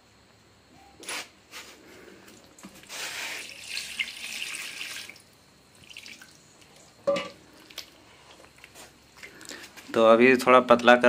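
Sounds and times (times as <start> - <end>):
water pouring and splashing: 2.6 - 8.0.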